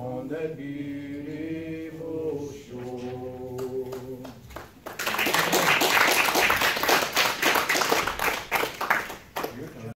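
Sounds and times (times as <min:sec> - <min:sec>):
congregation applauding: 0:04.2 - 0:09.9
voices among clapping: 0:04.6 - 0:09.9.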